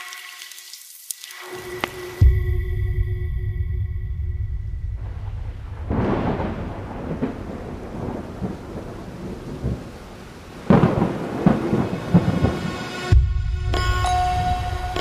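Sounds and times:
rain-like hiss: 0.0 - 2.4, 5.0 - 13.1
thunder rumble: 4.0 - 13.6
thunder crack: 4.8 - 13.3.

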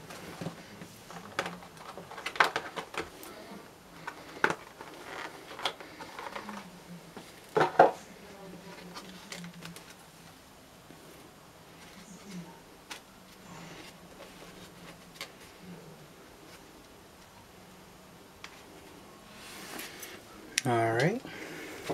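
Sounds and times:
plastic packaging crinkling: 0.3 - 3.2.

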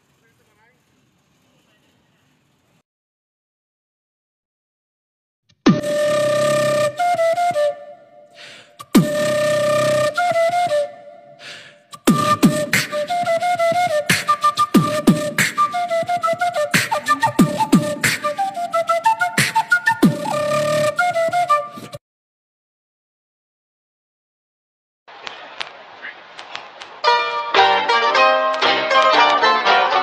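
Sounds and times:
flute melody: 5.7 - 22.0, 27.0 - 30.0.

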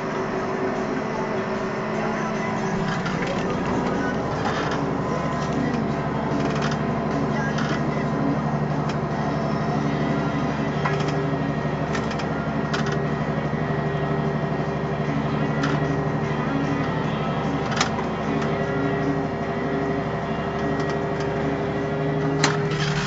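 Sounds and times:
tractor diesel engine running: 0.0 - 23.0
sharp clicks and rattles: 2.6 - 7.9, 22.4 - 23.0.

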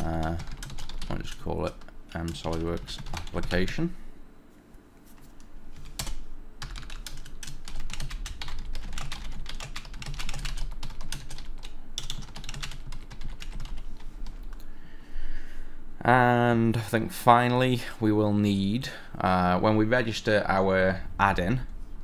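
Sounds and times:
fast typing on keyboard: 0.0 - 3.8, 5.8 - 14.5.

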